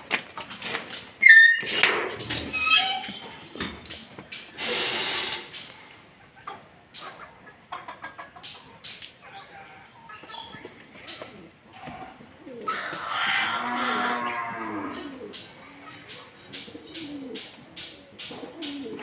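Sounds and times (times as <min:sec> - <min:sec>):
chickens clucking: 0:00.0 - 0:19.0
loud pitched animal call: 0:12.7 - 0:15.3.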